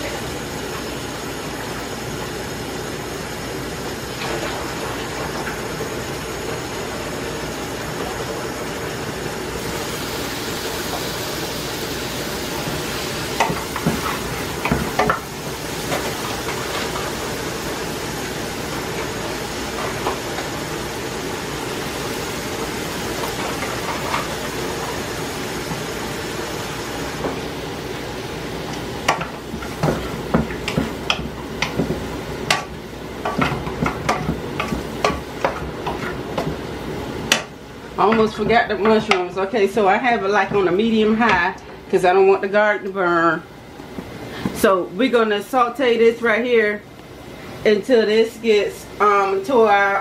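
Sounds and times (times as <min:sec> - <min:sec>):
vegetables sizzling in a frying pan: 0:00.0 - 0:41.1
spoon knocking and scraping pan: 0:13.3 - 0:17.2, 0:29.0 - 0:36.7, 0:37.3 - 0:39.3.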